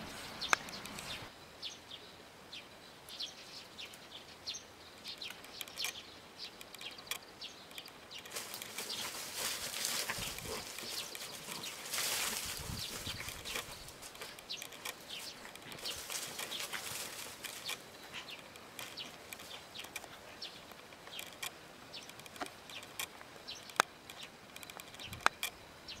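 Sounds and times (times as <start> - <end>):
small birds chirping: 0.0 - 26.0
sharp clicks: 5.1 - 6.0, 6.6 - 25.6.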